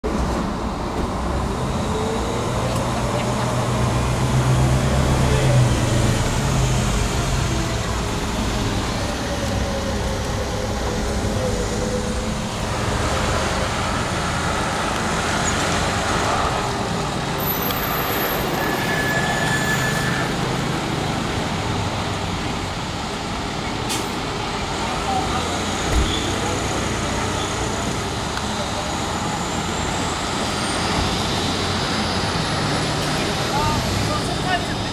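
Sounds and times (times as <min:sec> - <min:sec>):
road traffic: 0:00.0 - 0:34.9.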